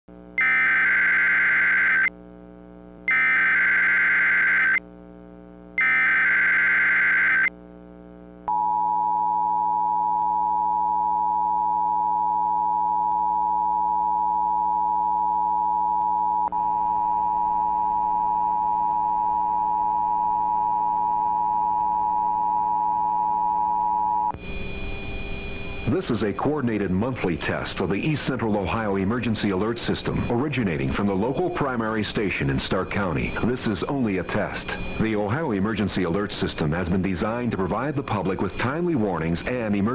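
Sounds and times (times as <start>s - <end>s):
faint steady hum: 0.1s - 39.9s
buzzing digital data bursts: 0.4s - 2.1s, 3.1s - 4.8s
two-tone attention signal: 8.5s - 18.4s.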